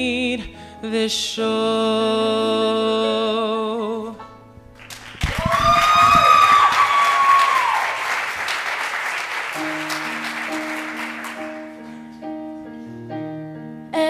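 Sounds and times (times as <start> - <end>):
audience applauding: 4.8 - 12.0
keyboard playing slow chords: 9.6 - 14.0.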